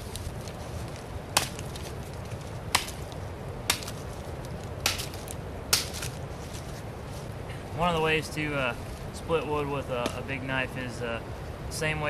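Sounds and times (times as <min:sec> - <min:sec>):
knife chopping wood: 0:01.4 - 0:01.8, 0:02.7 - 0:03.1, 0:03.7 - 0:04.0, 0:04.8 - 0:06.1.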